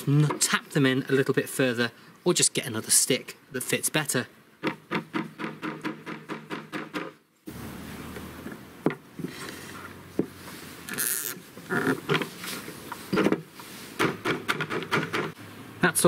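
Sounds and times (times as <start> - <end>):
handling rustle: 9.2 - 14.0.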